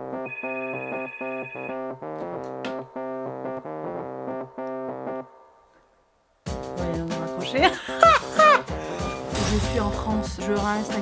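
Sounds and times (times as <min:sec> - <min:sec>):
phone ringtone melody: 0:00.0 - 0:02.0
high steady beep: 0:00.1 - 0:01.8.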